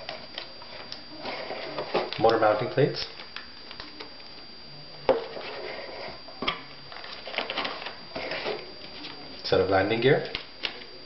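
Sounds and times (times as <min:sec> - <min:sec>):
parts rattling and rustling: 0:06.9 - 0:09.2.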